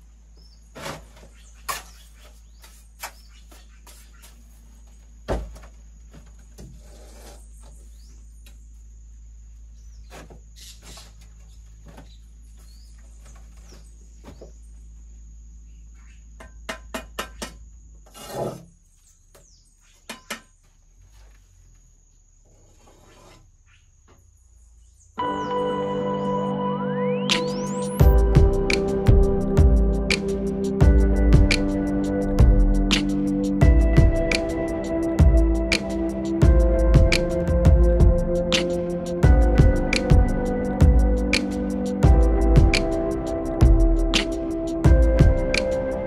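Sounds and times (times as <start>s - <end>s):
trowel knocking and scraping bricks: 16.4s - 18.7s
music: 25.2s - 46.0s.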